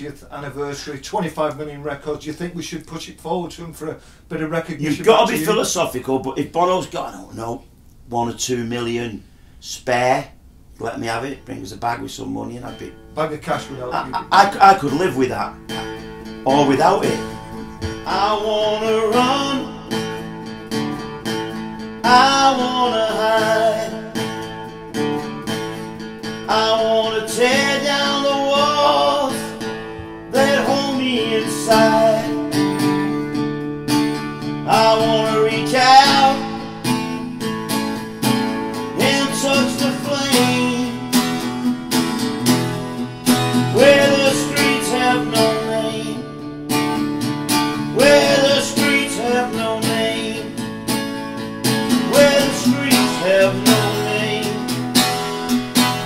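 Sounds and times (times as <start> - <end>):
acoustic guitar: 0.0 - 56.0
person singing: 5.1 - 5.7, 15.7 - 20.2, 22.0 - 24.3, 26.4 - 29.7, 30.3 - 32.9, 34.6 - 37.1, 38.9 - 41.7, 43.6 - 46.3, 47.8 - 50.7, 51.8 - 54.8.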